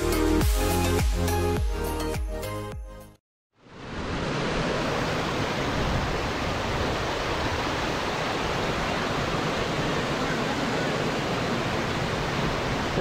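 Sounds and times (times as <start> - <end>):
creek water rushing over rocks: 3.7 - 13.0.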